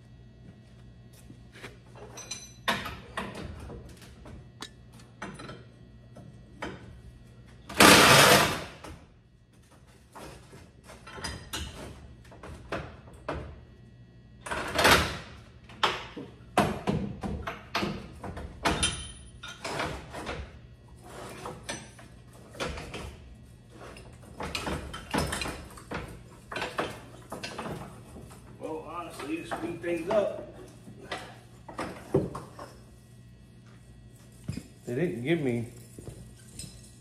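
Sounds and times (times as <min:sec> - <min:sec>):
metallic clanks and scrapes of tools: 0:02.0 - 0:03.3, 0:18.7 - 0:20.4.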